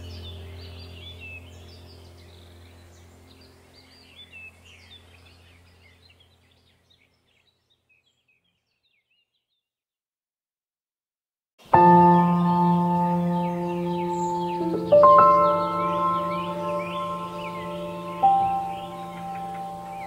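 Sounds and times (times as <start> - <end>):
steady low drone: 0.0 - 6.0, 11.8 - 20.0
high bird chirps: 11.8 - 20.0.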